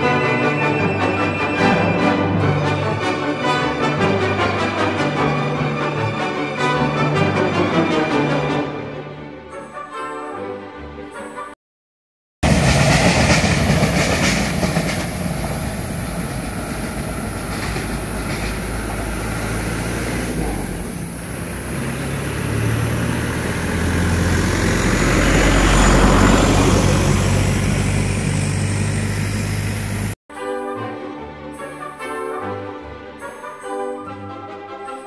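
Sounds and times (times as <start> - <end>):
train rail noise: 12.4 - 30.2.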